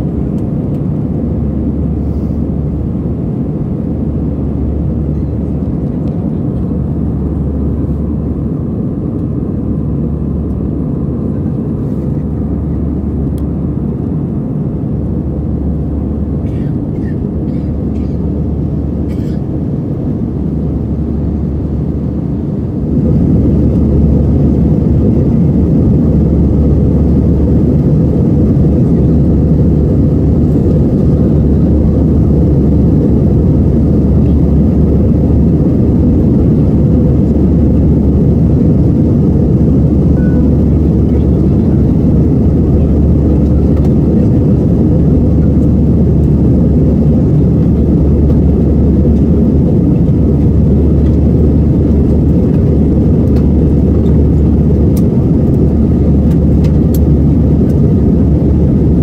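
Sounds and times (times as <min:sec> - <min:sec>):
jet airliner cabin rumble: 0:00.0 - 0:59.0.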